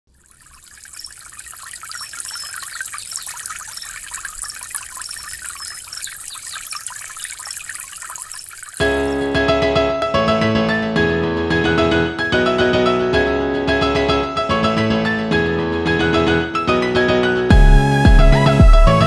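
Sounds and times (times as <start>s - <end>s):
stream trickling and splashing: 0.1s - 9.4s.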